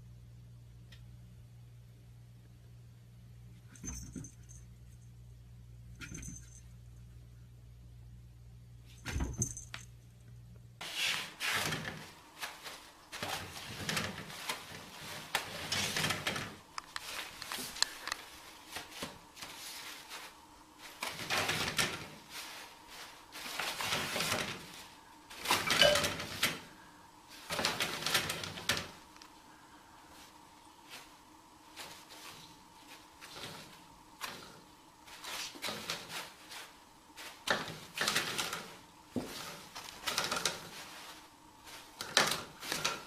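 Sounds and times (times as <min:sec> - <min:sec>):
toilet paper rustling: 0:10.8 - 0:29.2, 0:30.0 - 0:43.0.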